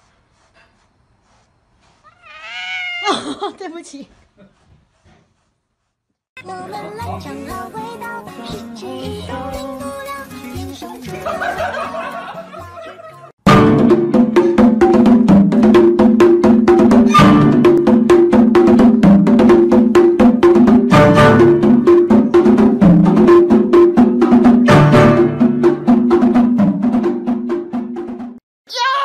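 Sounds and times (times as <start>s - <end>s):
struck percussive notes: 13.5s - 28.4s.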